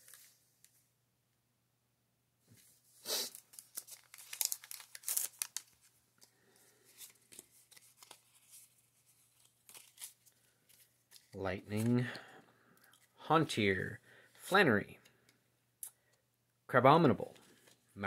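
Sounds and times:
foil wrapper crinkling: 3.3s - 8.7s, 9.3s - 11.9s
cards rustling and clicking: 3.4s - 13.2s, 17.3s - 17.9s.

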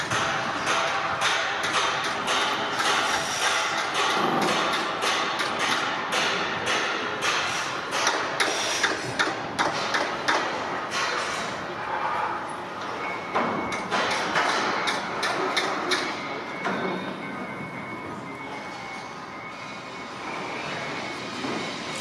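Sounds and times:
steady background hum: 0.0s - 22.0s
sharp hammering knocks: 0.1s - 11.2s.

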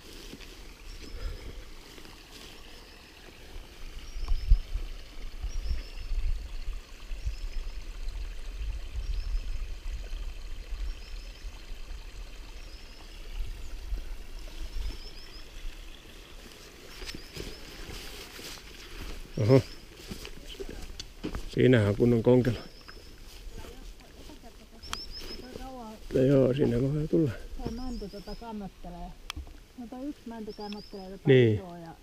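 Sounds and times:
wind buffeting microphone: 3.8s - 12.2s
small bird chirping: 22.4s - 26.8s, 27.6s - 28.7s, 30.2s - 31.4s.

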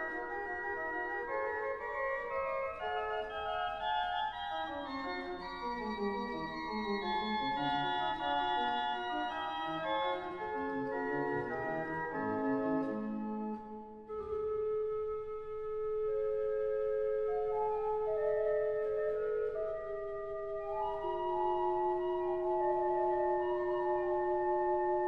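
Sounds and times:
slow organ chords: 0.0s - 15.4s.

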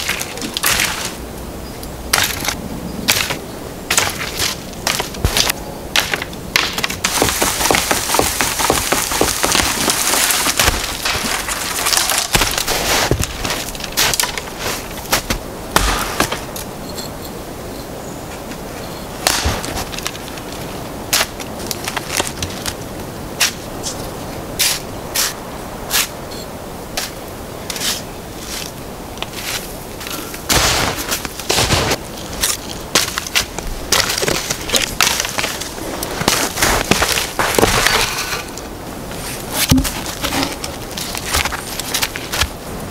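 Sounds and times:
dry wood cracking and snapping: 0.0s - 1.2s, 2.1s - 16.6s, 19.2s - 22.8s, 30.0s - 42.9s.

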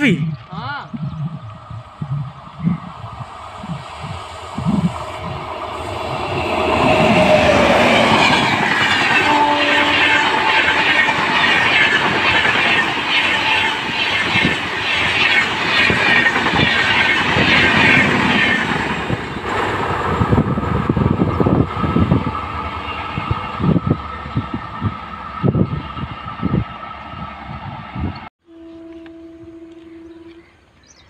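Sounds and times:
train passing: 1.1s - 30.8s
train wheels clickety-clack: 1.2s - 20.6s.

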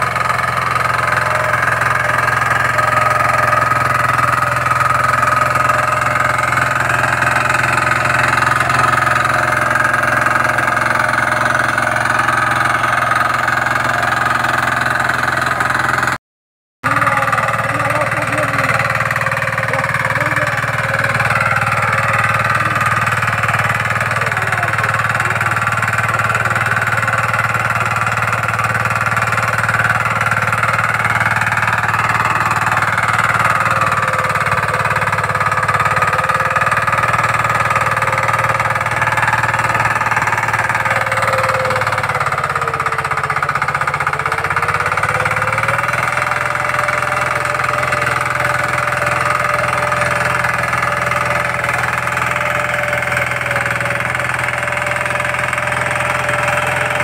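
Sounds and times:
power weeder engine running: 0.0s - 16.2s, 16.8s - 57.0s.

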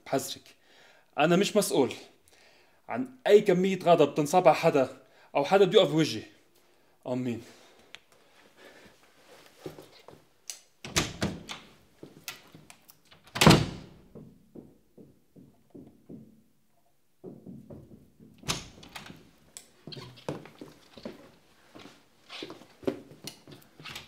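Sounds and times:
knocks: 14.1s - 16.4s, 17.2s - 18.6s.

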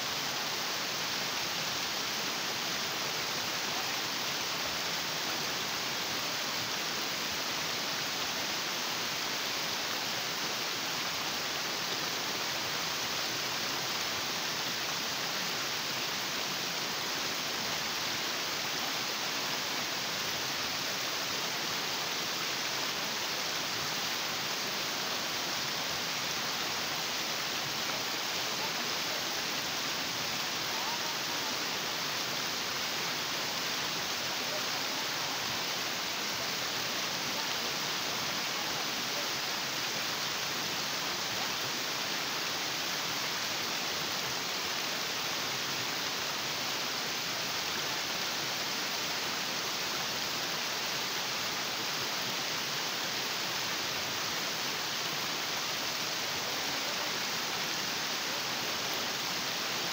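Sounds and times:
stream water rushing over rocks: 0.0s - 59.9s.

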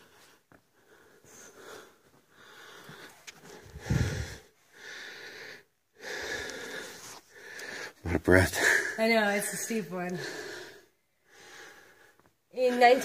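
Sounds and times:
person breathing hard: 0.0s - 8.0s, 10.2s - 12.2s.

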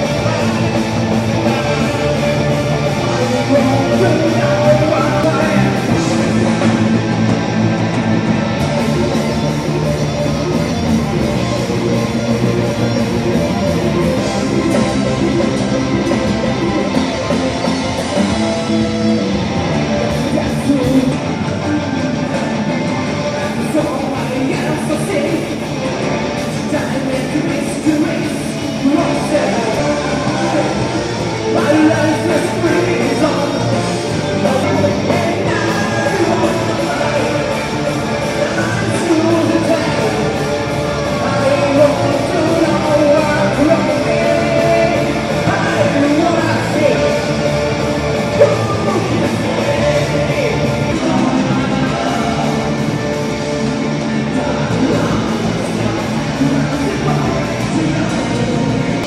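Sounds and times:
person singing: 0.0s - 7.1s, 20.0s - 59.0s
electric guitar: 0.0s - 59.0s
keyboards: 0.0s - 59.0s.

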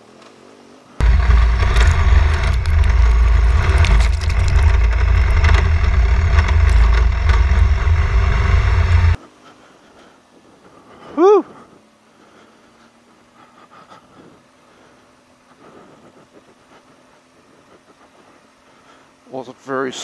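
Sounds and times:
motorcycle low rumble: 1.0s - 9.2s.

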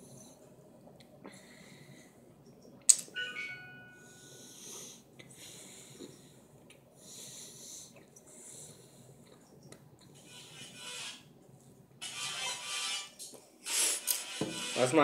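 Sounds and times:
brief ringing tone: 3.2s - 4.3s
hissing breaths through nose: 13.6s - 14.2s.

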